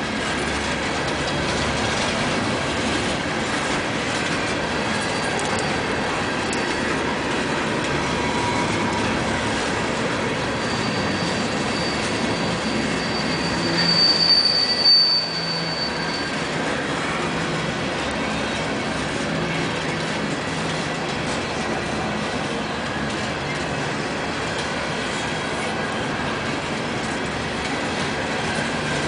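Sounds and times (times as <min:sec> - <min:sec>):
steel wheels rumbling on track: 0:00.0 - 0:29.0
high wheel squeal: 0:00.4 - 0:20.1.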